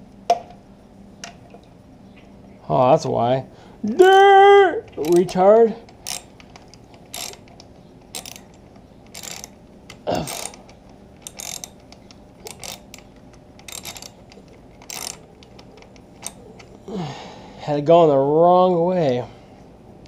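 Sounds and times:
ratchet wrench clicking: 0:04.9 - 0:16.7.

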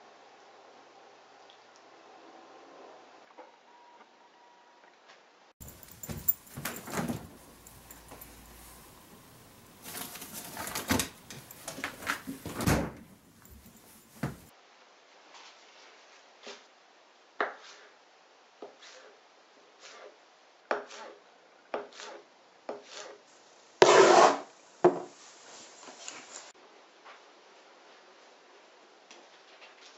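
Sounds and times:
rustling and knocks at refrigerator: 0:05.6 - 0:09.2, 0:09.8 - 0:14.5.

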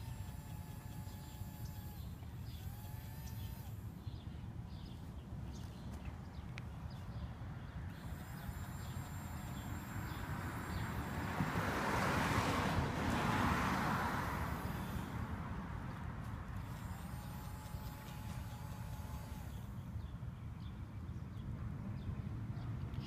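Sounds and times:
faint toy motor hum: 0:00.0 - 0:06.0, 0:07.7 - 0:20.4
car passing: 0:07.9 - 0:17.5.

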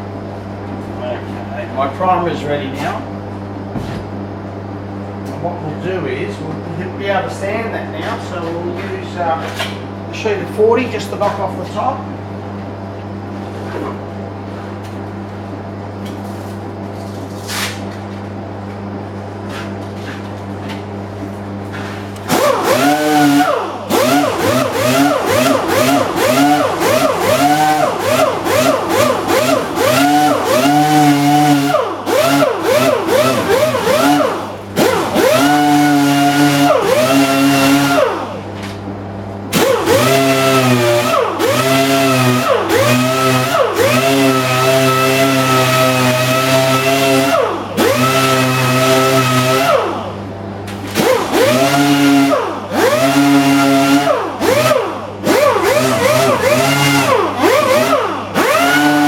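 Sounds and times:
orbital sander: 0:22.3 - 0:38.3, 0:39.6 - 0:49.9, 0:51.0 - 0:59.0.

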